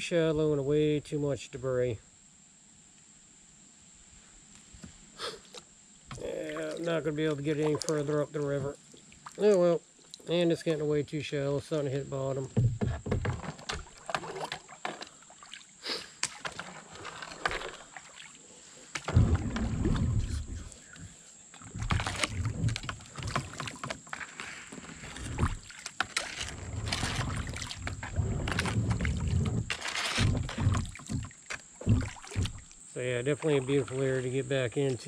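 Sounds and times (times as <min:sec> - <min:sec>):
paddle splashes and drips: 0:06.1 - 0:10.5, 0:12.6 - 0:34.9
knocks against kayak hull: 0:12.5 - 0:14.5, 0:30.2 - 0:32.7
low rumble: 0:19.2 - 0:20.7.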